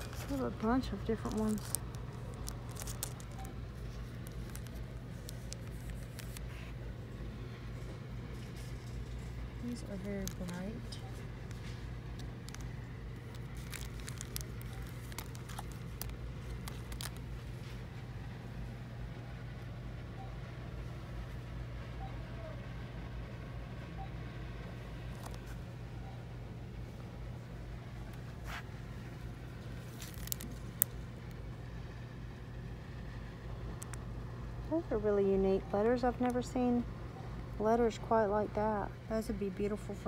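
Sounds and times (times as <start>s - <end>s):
plastic wrapping crinkling: 0.0s - 6.8s, 8.3s - 17.9s, 25.1s - 25.6s, 28.2s - 31.4s
steady low hum: 0.0s - 40.0s.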